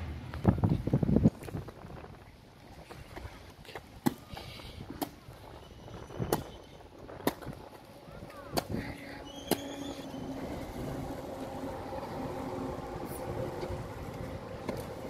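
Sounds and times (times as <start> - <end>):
wind rumbling on microphone: 0.0 - 15.0
vehicle engine hum: 6.7 - 15.0.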